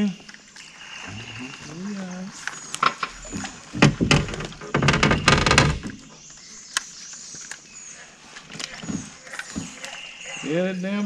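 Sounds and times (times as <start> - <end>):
gear knocking and rattling: 2.8 - 5.9.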